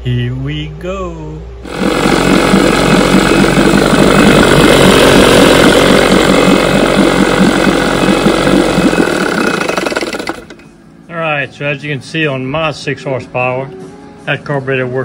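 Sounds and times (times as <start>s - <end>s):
outboard motor running: 1.6s - 10.8s.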